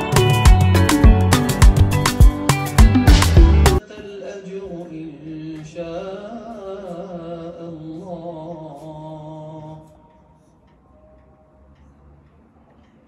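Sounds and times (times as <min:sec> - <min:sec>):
man chanting through tv speaker: 0:03.8 - 0:10.0.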